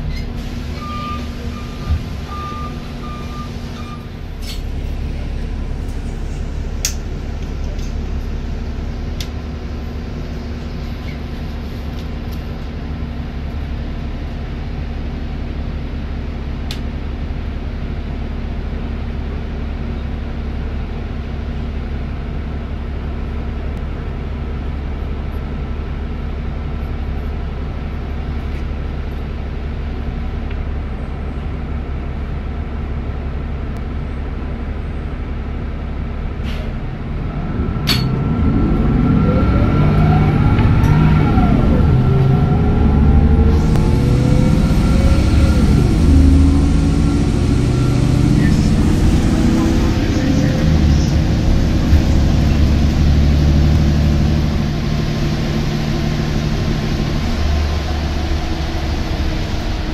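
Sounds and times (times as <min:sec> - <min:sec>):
bus engine revving with whine: 0:00.0 - 0:19.2, 0:35.9 - 0:59.9
bus engine idling: 0:00.0 - 0:59.9.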